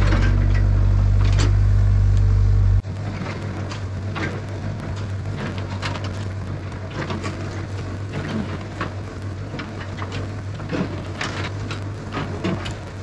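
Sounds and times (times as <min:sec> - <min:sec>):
crackling and clicking: 0:00.0 - 0:13.0
diesel engine running: 0:00.0 - 0:13.0.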